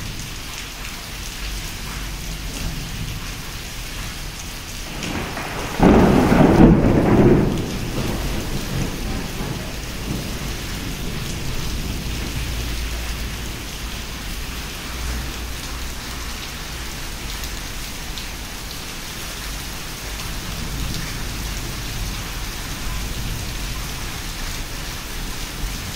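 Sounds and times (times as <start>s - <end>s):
heavy rain falling: 0.0s - 25.9s
thunder clap: 4.2s - 15.2s.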